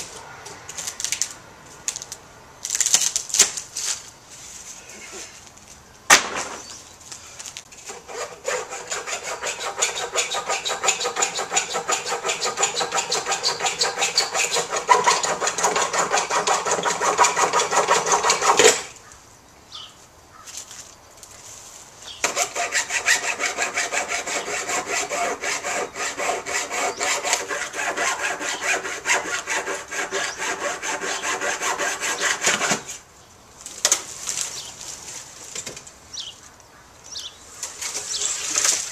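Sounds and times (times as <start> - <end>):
hand saw cutting wood: 7.8 - 19.0, 22.2 - 33.0.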